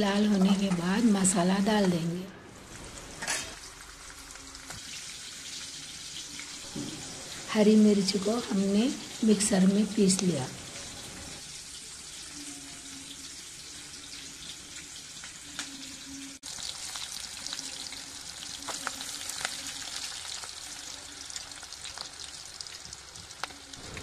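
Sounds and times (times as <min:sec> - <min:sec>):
onions sizzling in hot oil: 0:02.7 - 0:24.0
crackles and pops: 0:18.5 - 0:20.8.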